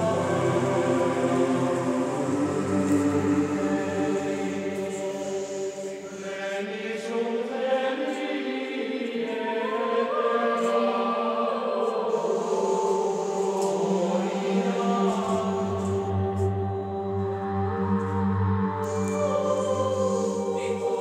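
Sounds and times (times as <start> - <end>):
choral chanting: 0.0 - 21.0.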